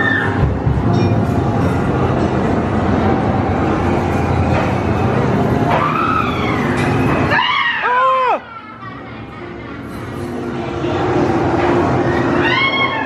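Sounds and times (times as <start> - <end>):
wailing cry: 12.3 - 13.0.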